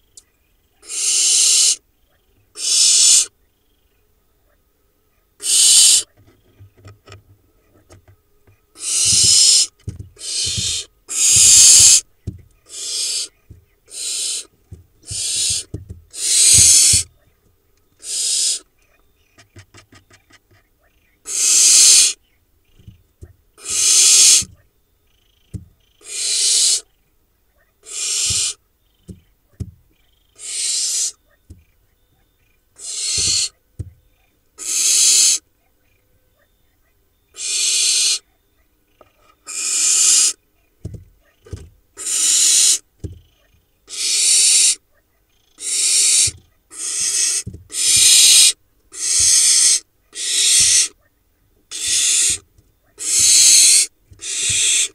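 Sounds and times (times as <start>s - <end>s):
owl chicks hissing calls: 0.0s - 4.6s, 5.4s - 6.5s, 8.7s - 17.2s, 17.9s - 27.0s, 27.8s - 29.3s, 29.9s - 35.5s, 36.8s - 51.0s, 51.6s - 54.9s.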